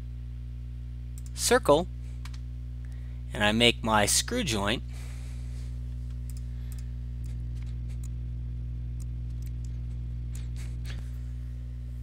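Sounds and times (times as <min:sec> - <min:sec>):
faint clicks: 0:01.2 - 0:01.4.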